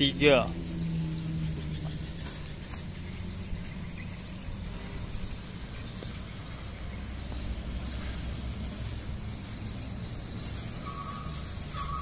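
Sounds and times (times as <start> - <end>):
distant bus engine rumble: 0.0 - 12.0
faint high chirping: 1.6 - 12.0.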